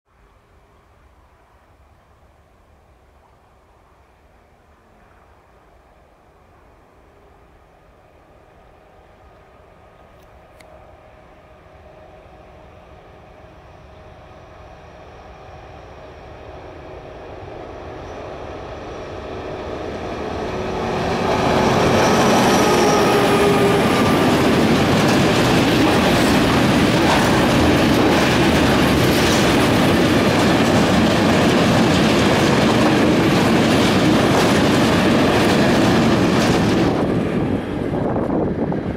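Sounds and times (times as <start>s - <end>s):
freight train rumbling: 0.5s - 38.9s
wheels clattering over rails: 21.0s - 37.3s.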